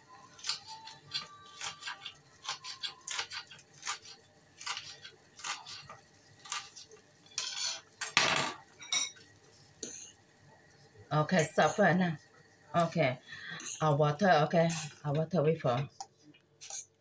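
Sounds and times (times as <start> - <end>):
dishes and utensils clinking: 7.3 - 10.2.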